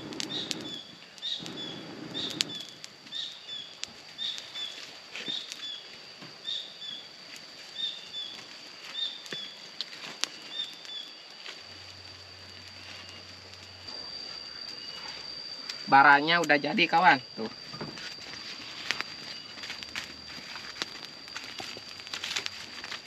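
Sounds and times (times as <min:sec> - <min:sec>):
blowing on fire: 0:00.0 - 0:05.8
fire crackling and snapping: 0:00.0 - 0:23.0
steady high whine: 0:00.0 - 0:23.0.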